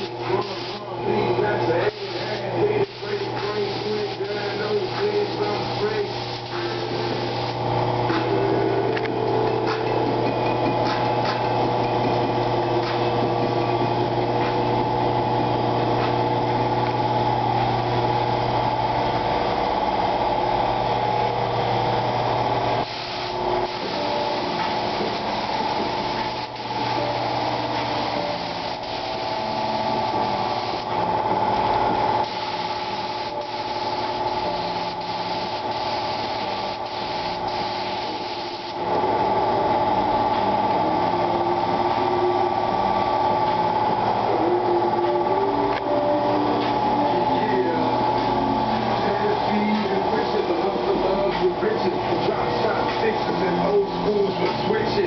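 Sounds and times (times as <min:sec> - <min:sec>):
paint spray gun hissing: 0:00.0 - 0:00.9, 0:01.8 - 0:07.8, 0:22.8 - 0:31.0, 0:32.2 - 0:38.8.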